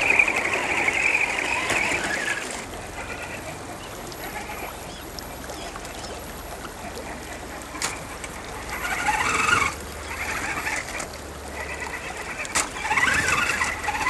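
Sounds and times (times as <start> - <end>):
rc car motor whining: 0.0 - 3.3, 8.7 - 14.0
creek rushing: 0.0 - 14.0.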